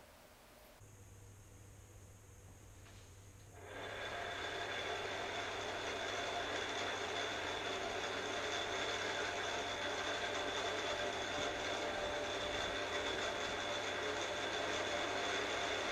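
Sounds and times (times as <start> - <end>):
electric motor whining: 3.6 - 15.9.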